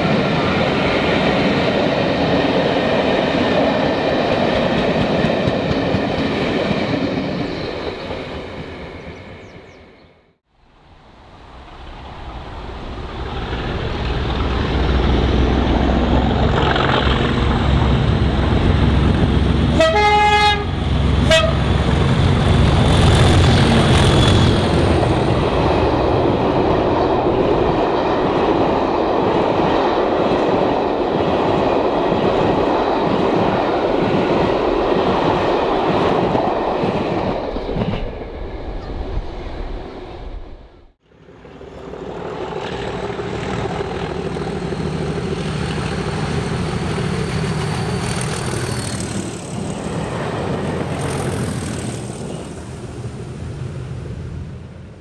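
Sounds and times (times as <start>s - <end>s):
diesel locomotive engines: 0.0s - 55.0s
locomotive horn blast: 19.7s - 21.7s.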